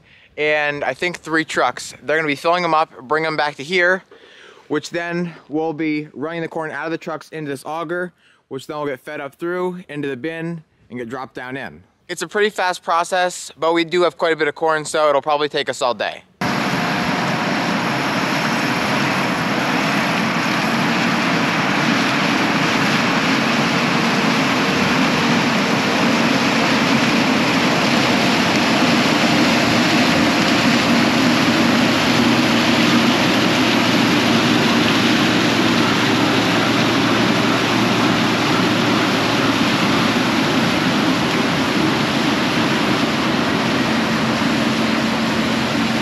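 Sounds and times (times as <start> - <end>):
combine harvester running: 16.4 - 46.0.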